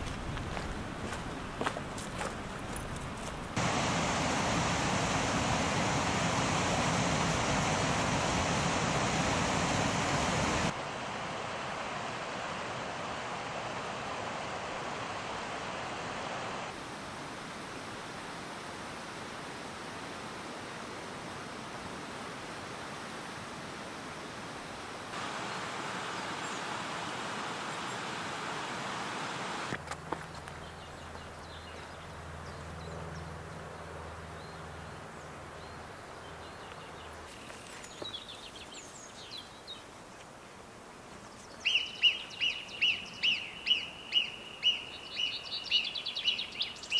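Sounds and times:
rushing mountain water: 0:00.0 - 0:30.6.

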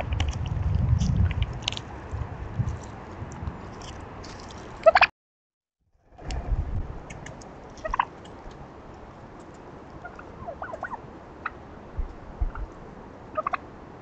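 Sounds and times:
turkeys calling: 0:04.8 - 0:05.1, 0:07.8 - 0:08.6, 0:09.4 - 0:11.6, 0:12.4 - 0:13.6
dull low thumps: 0:12.0 - 0:12.7.

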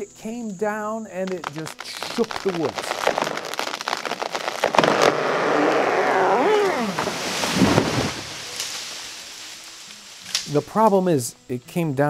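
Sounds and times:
tree trunk cracking and snapping: 0:01.3 - 0:10.6
wood creaking: 0:01.4 - 0:09.1
rush of falling leaves and branches: 0:01.4 - 0:10.9.

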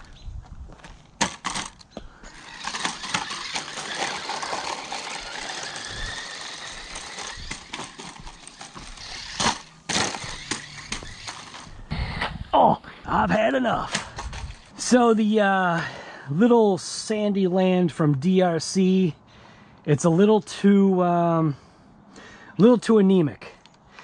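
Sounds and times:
rc truck rattling over ground: 0:01.1 - 0:11.9, 0:13.4 - 0:15.0
electric motor whine: 0:02.2 - 0:11.9.

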